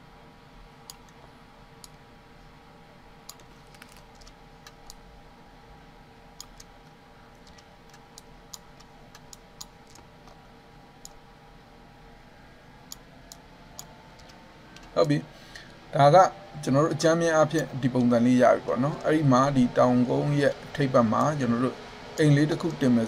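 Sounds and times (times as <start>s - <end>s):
steady low hum: 0.0s - 23.0s
computer mouse clicks: 1.8s - 2.0s, 3.3s - 5.0s, 6.4s - 10.4s, 12.9s - 15.1s.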